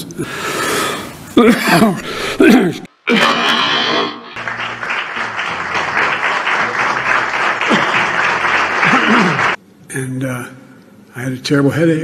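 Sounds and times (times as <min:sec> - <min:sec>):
audience applauding: 0:04.4 - 0:09.6.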